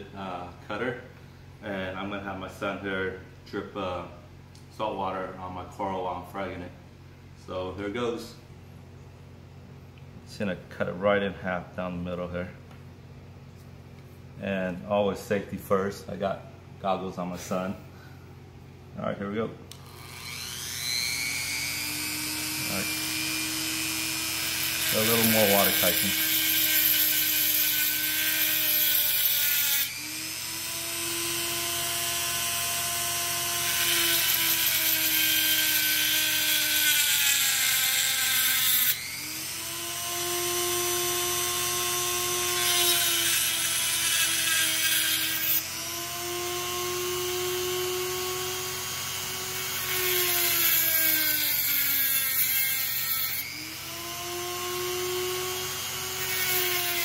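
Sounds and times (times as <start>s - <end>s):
rotary tool whining: 19.7s - 57.0s.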